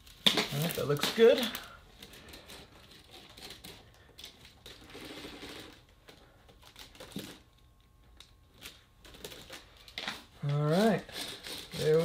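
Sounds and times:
plastic parts clicking and rattling: 0.0s - 7.6s.

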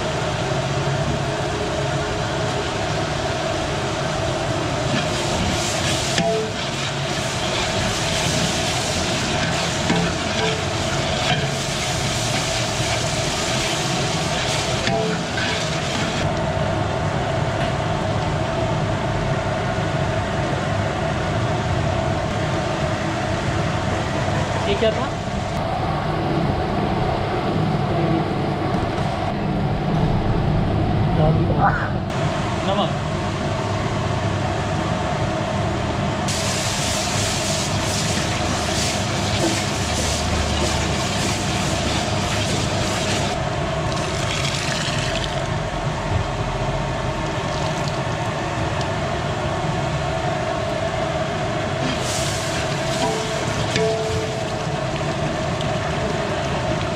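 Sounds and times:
pot cooking over strong flame: 0.0s - 25.7s, 32.1s - 56.9s
food frying roar: 0.0s - 29.4s, 32.1s - 56.9s
bright sizzle: 2.7s - 16.5s, 36.3s - 45.7s, 51.6s - 56.9s.

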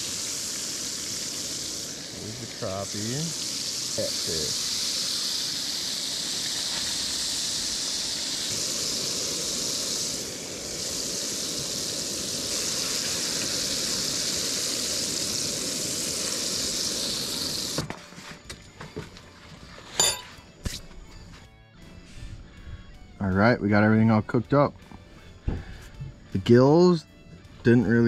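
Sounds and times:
fish sizzling in hot oil: 0.0s - 17.9s.

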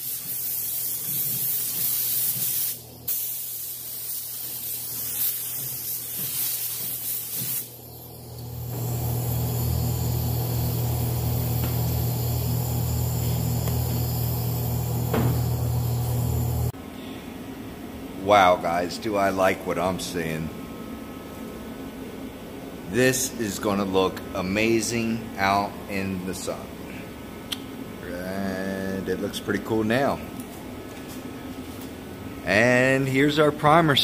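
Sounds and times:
spray gun hissing: 0.0s - 16.7s
low machine hum: 7.8s - 29.4s.

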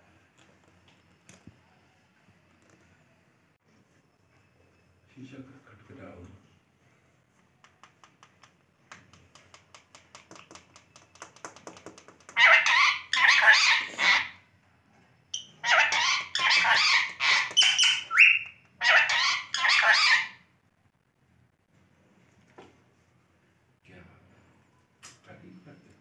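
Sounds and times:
parakeets ticking clicks: 7.6s - 12.4s
parakeets squawking: 12.4s - 14.4s, 15.4s - 20.4s.

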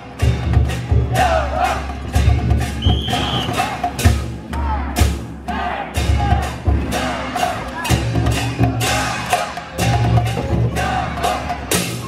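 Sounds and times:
deep drum beats: 0.0s - 12.0s
metal percussion strikes: 0.0s - 12.0s
men chanting: 1.0s - 2.1s, 3.1s - 12.0s
high whistle-like tone: 2.8s - 3.7s.

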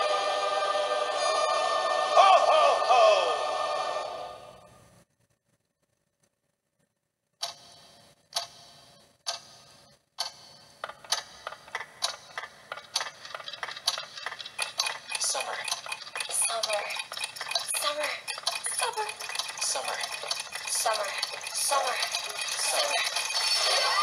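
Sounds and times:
voices: 2.1s - 3.7s, 15.2s - 15.7s, 16.3s - 17.1s, 17.7s - 24.0s
fast ticking and clicking: 7.4s - 24.0s.

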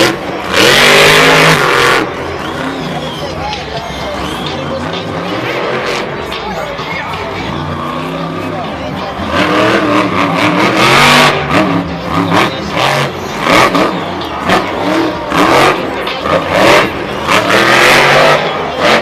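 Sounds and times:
truck engine revving hard: 0.0s - 19.0s.

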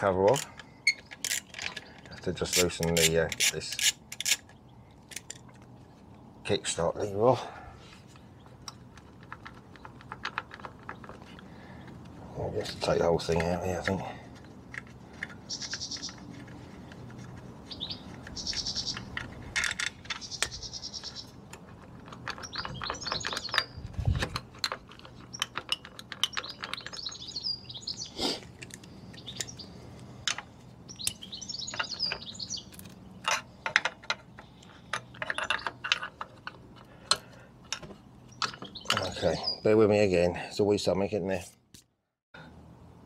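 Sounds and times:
birds chirping: 0.0s - 41.1s
hand tools clicking on metal: 0.2s - 5.6s, 21.4s - 27.4s, 30.2s - 39.2s.

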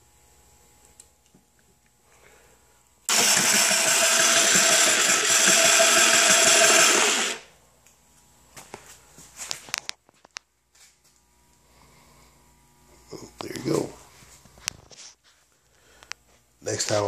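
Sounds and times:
electric winch motor running: 3.1s - 7.5s.

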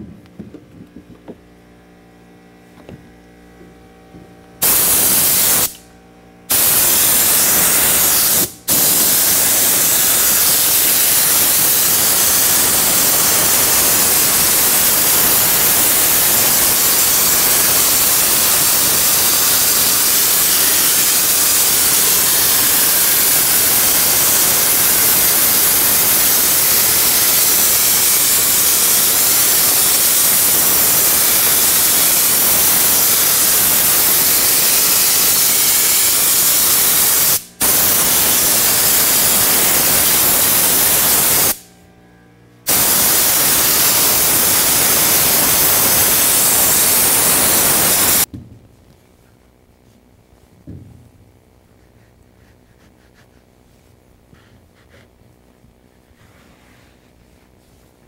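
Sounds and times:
spray gun hissing: 4.6s - 5.8s, 6.5s - 41.7s, 42.7s - 48.3s.

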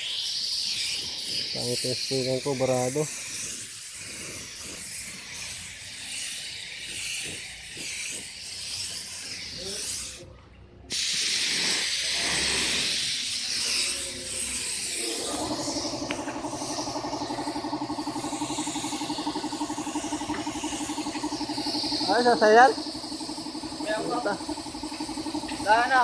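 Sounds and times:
compressed air hissing from spray gun: 0.0s - 26.0s
motor running with fast pulse: 12.2s - 26.0s.

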